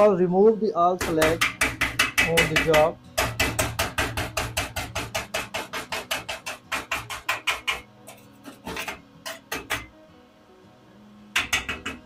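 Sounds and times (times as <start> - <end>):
hammer knocking on metal: 1.0 - 7.9, 11.4 - 12.0.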